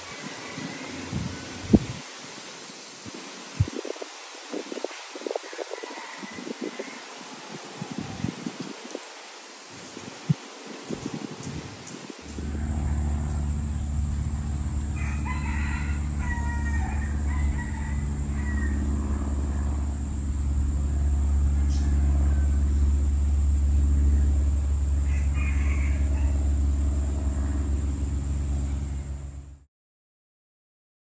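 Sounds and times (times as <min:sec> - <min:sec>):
distant rooster crowing: 0:00.0 - 0:01.8, 0:05.4 - 0:07.4, 0:12.3 - 0:29.3
steady low rumble: 0:12.2 - 0:29.6
thin high tone: 0:12.3 - 0:29.5.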